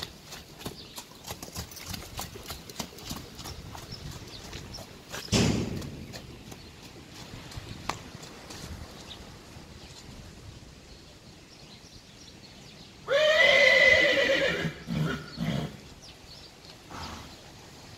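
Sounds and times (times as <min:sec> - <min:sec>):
horse neighing: 0:13.0 - 0:15.8.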